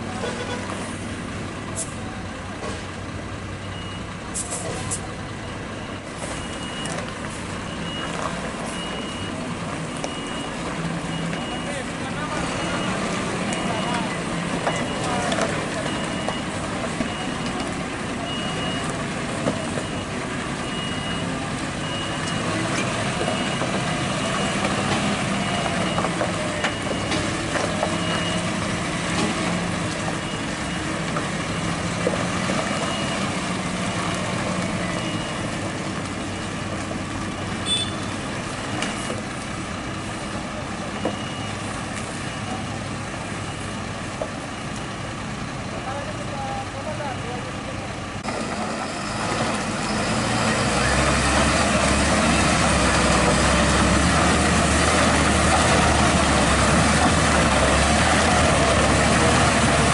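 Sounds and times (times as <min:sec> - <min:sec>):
diesel truck engine revving: 0:00.0 - 0:59.9
reversing alarm beeping: 0:05.4 - 0:19.0, 0:19.6 - 0:28.6, 0:37.4 - 0:39.1.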